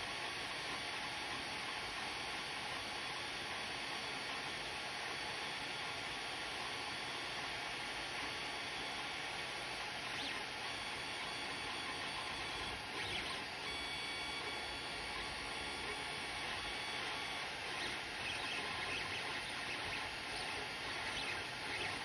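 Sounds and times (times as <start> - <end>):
stepper motors whining: 15.8 - 22.0.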